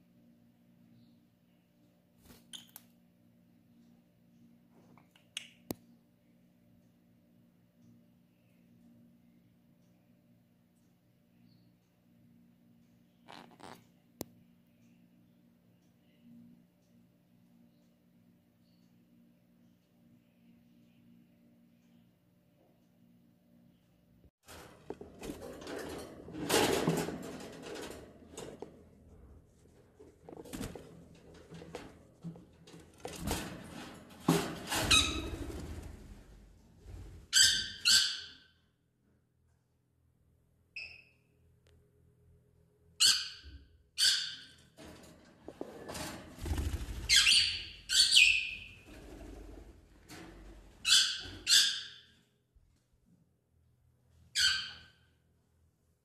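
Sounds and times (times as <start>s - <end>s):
clattering around a wire birdcage: 24.4s - 36.2s, 44.6s - 47.4s
birds giving harsh calls: 46.6s - 48.8s.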